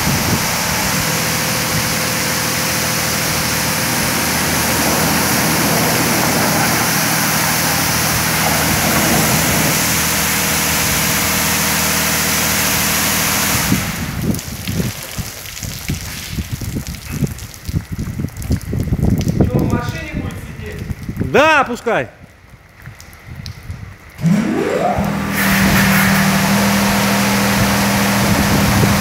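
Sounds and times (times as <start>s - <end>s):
machine hum: 0.0s - 14.8s, 24.2s - 29.0s
high-pressure water spray hiss: 0.0s - 17.2s.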